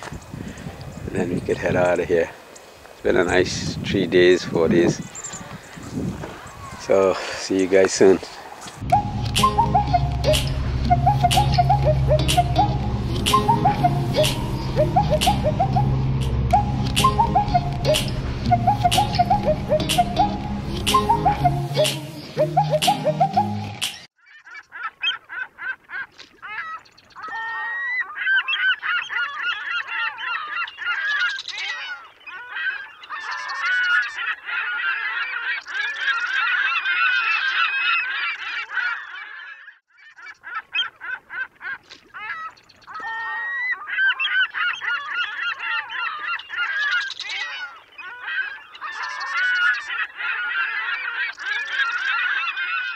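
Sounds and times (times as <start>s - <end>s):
geese honking: 8.9s - 23.9s.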